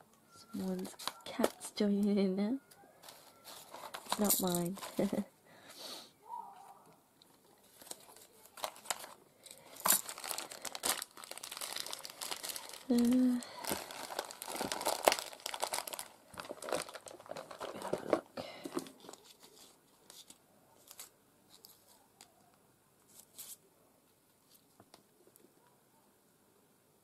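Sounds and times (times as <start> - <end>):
plastic bag crinkling: 0.4 - 2.1, 3.0 - 5.3, 7.6 - 22.0
paper rustling and tapping: 7.7 - 9.2.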